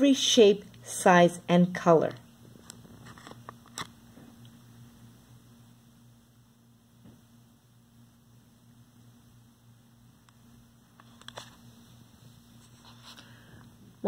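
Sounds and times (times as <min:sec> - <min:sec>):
steady low hum: 0:00.0 - 0:14.0
paper page rustling: 0:02.8 - 0:03.9, 0:12.6 - 0:13.3.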